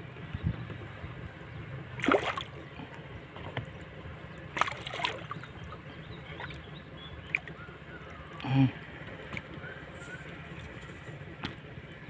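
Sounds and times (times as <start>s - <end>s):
water lapping: 1.9s - 11.0s
fish splashing at surface: 4.6s - 5.4s.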